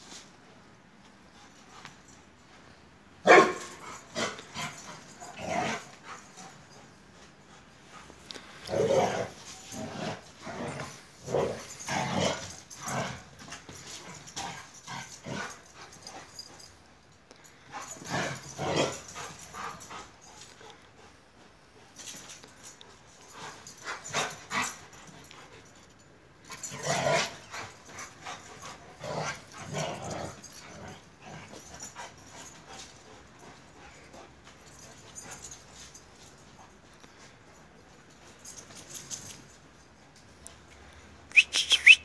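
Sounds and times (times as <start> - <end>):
large dogs barking: 3.2 - 5.9.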